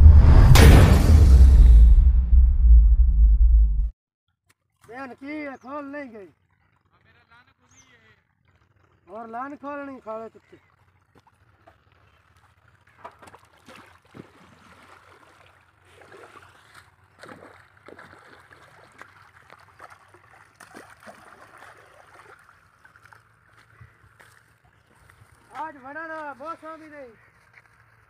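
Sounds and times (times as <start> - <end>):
water gurgling and trickling: 6.3 - 7.4, 8.1 - 26.7
feet squelching in wet mud: 10.4 - 28.0.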